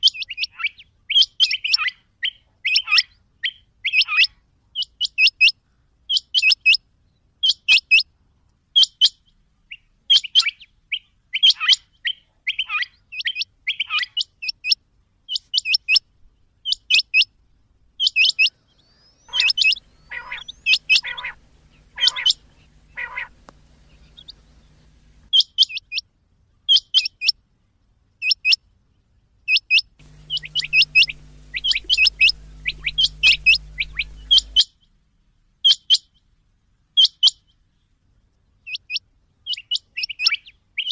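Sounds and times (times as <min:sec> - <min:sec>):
low steady hum: 0:17.4 - 0:25.3, 0:30.0 - 0:34.6
quail calling: 0:18.0 - 0:25.4, 0:30.0 - 0:34.7.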